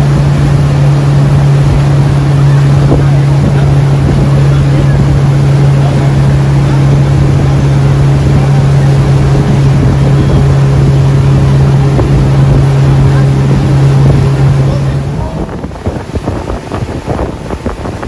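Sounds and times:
motorboat engine droning: 0:00.0 - 0:18.0.

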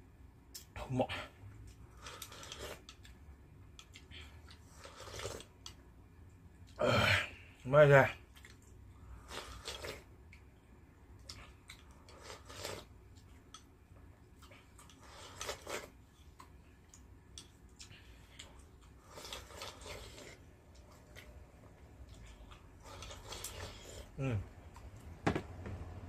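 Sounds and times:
chewing: 0:01.6 - 0:05.8, 0:08.2 - 0:10.5, 0:11.2 - 0:24.1.

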